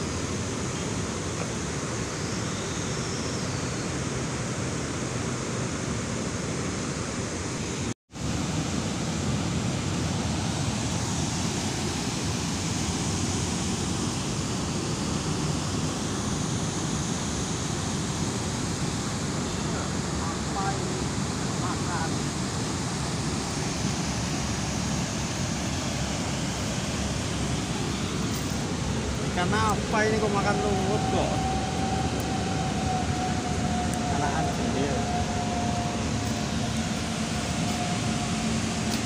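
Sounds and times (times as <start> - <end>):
steady rushing noise: 0.0 - 39.0.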